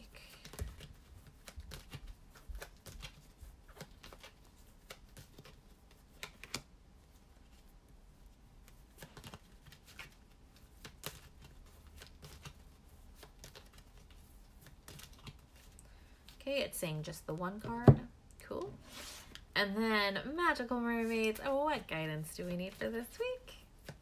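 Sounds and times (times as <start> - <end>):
cards being shuffled: 0.2 - 7.6, 8.6 - 16.4.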